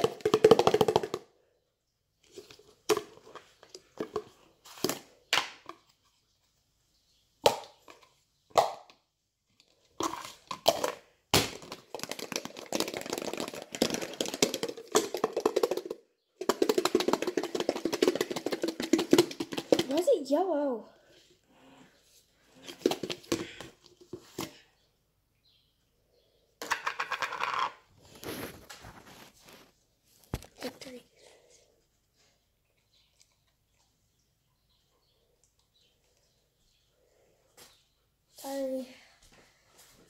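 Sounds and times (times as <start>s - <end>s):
egg rattling in plastic container: 0.0s - 1.3s, 10.0s - 20.4s, 22.6s - 24.5s, 26.6s - 29.0s.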